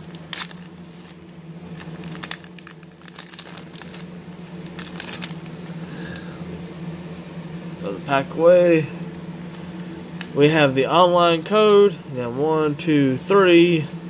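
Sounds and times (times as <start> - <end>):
foil wrapper crinkling and tearing: 0.0 - 6.3.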